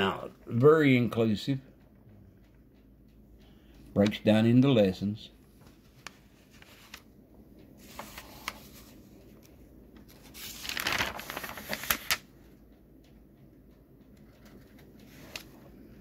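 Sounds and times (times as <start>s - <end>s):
book pages turning: 5.6s - 7.1s, 7.8s - 12.3s, 14.3s - 15.7s.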